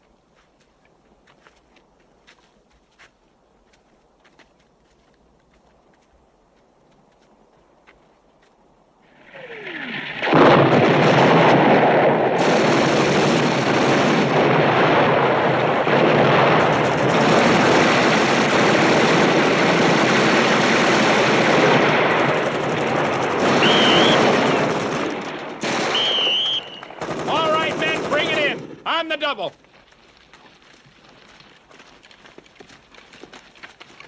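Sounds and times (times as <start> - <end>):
explosion: 9.1 - 27.6
automatic rifles firing: 10.0 - 29.4.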